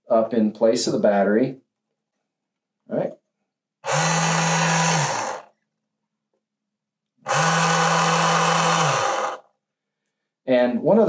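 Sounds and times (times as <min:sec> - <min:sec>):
geared servo motor running: 0:03.8 - 0:05.5, 0:07.3 - 0:09.5.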